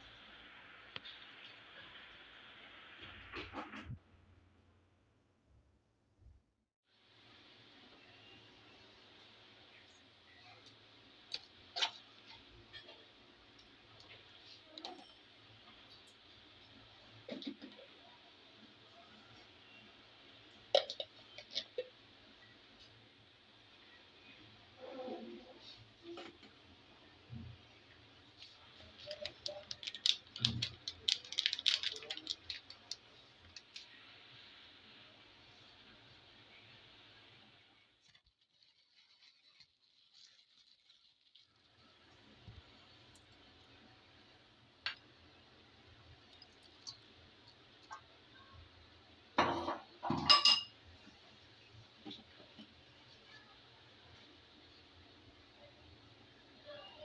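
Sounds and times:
dishware clinking against pot: 49.4 - 50.8.

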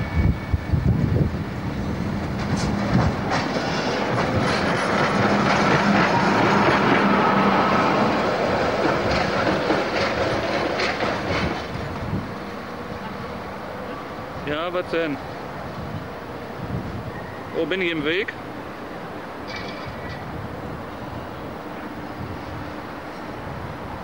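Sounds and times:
light-rail train humming: 0.0 - 24.0
wheels clicking over rail joints: 8.2 - 12.2, 19.4 - 20.4.

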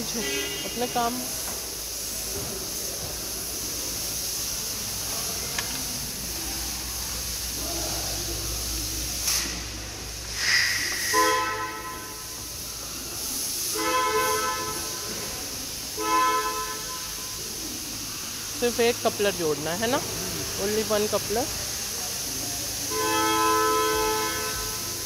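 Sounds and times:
vehicle horn honking: 0.0 - 1.1, 11.0 - 12.4, 13.7 - 15.2, 16.0 - 17.4, 22.9 - 25.0
steady hiss: 0.0 - 25.0.

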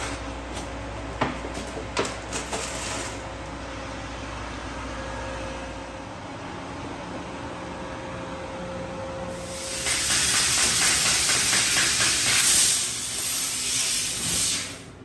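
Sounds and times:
low steady machine hum: 0.0 - 9.6
loud hiss of laser cutting: 9.3 - 14.9.

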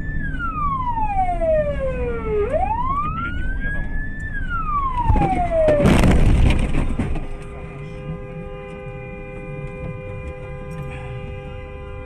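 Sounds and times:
wailing siren: 0.0 - 6.8
car horn blaring: 7.5 - 12.0.

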